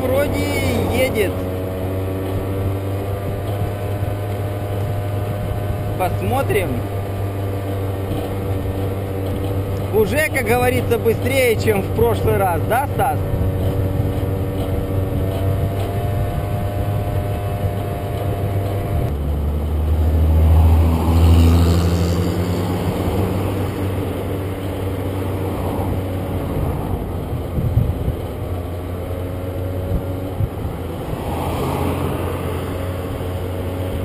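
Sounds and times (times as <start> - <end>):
car overtaking: 0.0 - 34.0
scooter engine running: 0.0 - 34.0
wind noise on microphone: 2.4 - 6.8, 7.9 - 19.2, 20.2 - 34.0.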